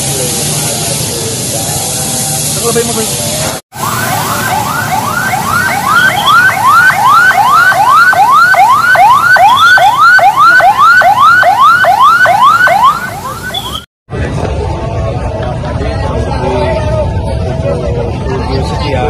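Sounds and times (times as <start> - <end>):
fire engine siren yelping: 3.7 - 13.9.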